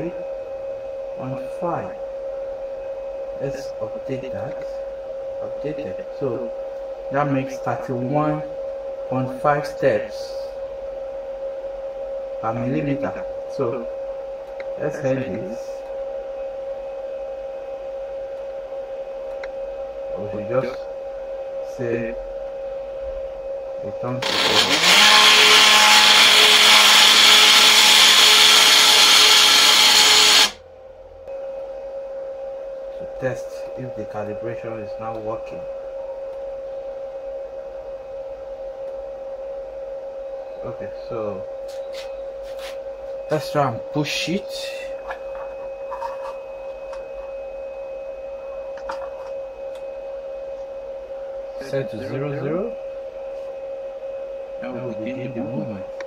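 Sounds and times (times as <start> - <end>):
steady hum: 0.0 - 56.0
stepper motors running: 24.2 - 30.6
steady tone: 24.2 - 30.8.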